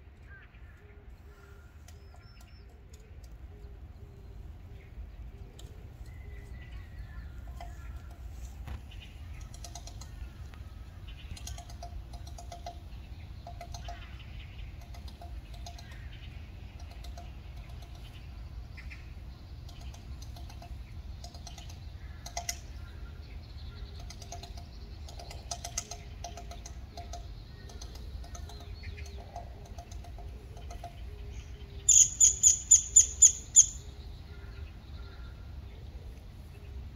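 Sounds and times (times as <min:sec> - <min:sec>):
steady low hum: 0:00.0 - 0:36.9
woodpecker pecking at bark: 0:01.8 - 0:03.7, 0:05.2 - 0:33.9.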